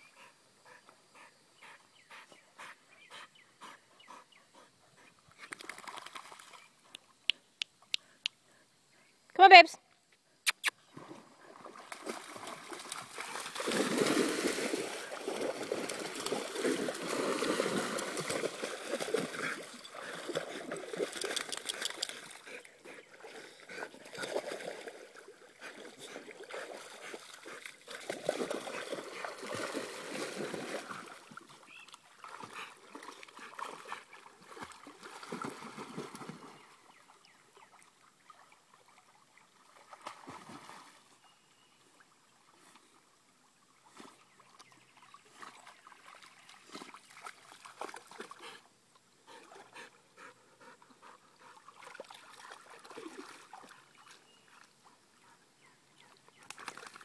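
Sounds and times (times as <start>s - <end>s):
dogs splashing through water: 5.3s - 6.8s, 10.9s - 41.1s, 44.1s - 48.7s, 49.4s - 54.9s, 56.0s - 57.0s.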